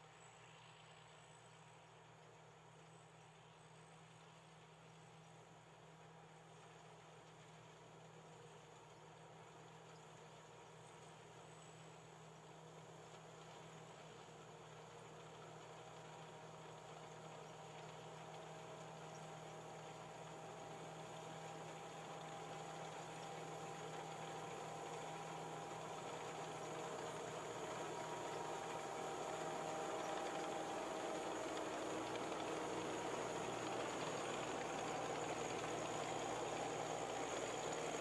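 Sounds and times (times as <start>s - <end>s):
combine harvester running: 13.1s - 38.0s.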